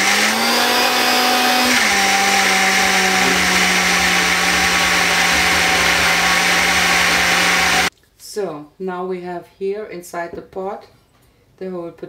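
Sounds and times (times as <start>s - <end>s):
electric blender running: 0.0s - 7.9s.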